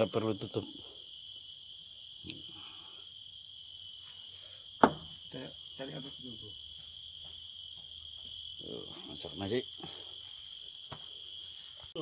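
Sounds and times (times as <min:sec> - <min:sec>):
forest insects chorus: 0:00.0 - 0:12.0
sharp knock: 0:04.8 - 0:05.1.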